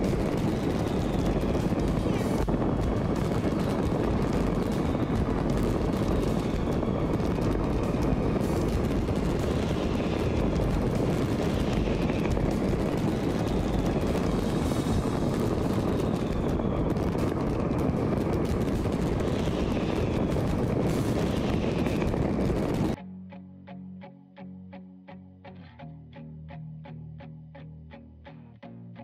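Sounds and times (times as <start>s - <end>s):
fireworks and firecrackers banging: 0.0s - 23.0s
guitar music: 23.0s - 29.0s.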